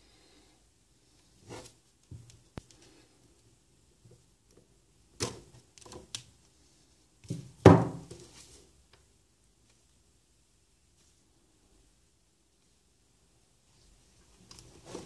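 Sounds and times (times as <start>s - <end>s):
plastic thunk: 7.3s - 8.1s.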